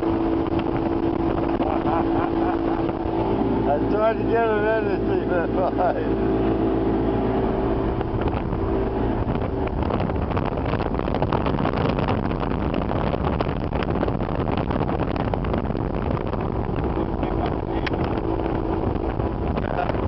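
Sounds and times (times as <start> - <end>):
motorboat engine drone: 0.0 - 20.0
water rushing past hull: 0.0 - 20.0
wind buffeting microphone: 0.0 - 20.0.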